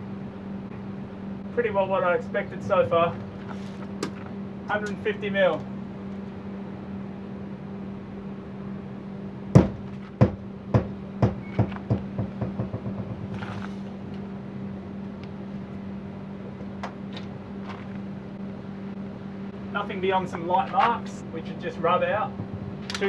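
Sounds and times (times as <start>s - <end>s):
steady low hum: 0.0s - 23.0s
sledgehammer knocking on fibreglass: 9.6s - 13.4s.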